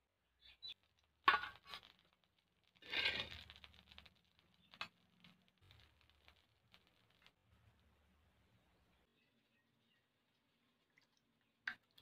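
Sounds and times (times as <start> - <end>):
metal spatula scraping griddle: 2.8 - 3.6.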